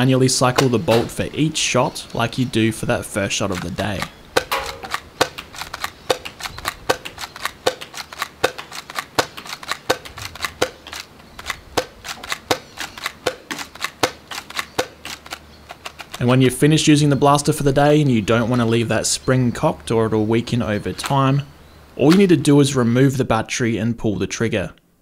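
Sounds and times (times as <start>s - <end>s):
toy dart pistol firing: 3.5s - 16.2s
bolt and spring clicks: 4.4s - 9.9s.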